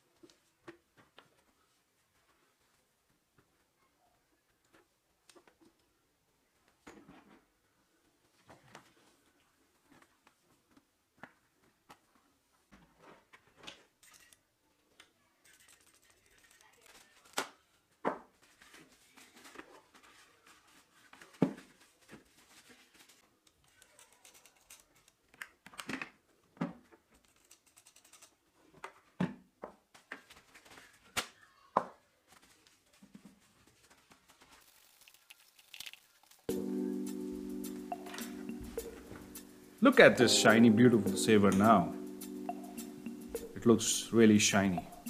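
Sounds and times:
paper towel rubbing on helmet: 18.4 - 23.2.

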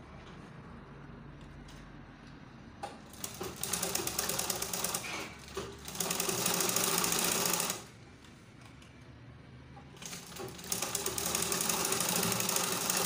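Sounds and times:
sewing machine stitching: 3.1 - 7.9, 10.0 - 13.0.

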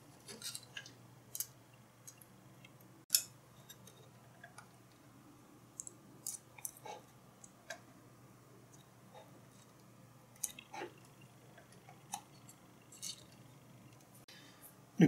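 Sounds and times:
faint steady hum: 0.0 - 15.0
small tools clicking and scraping: 0.1 - 5.0, 9.5 - 14.1.

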